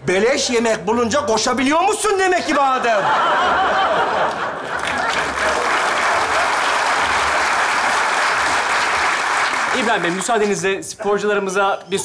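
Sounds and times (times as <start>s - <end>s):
audience applauding: 3.9s - 10.5s.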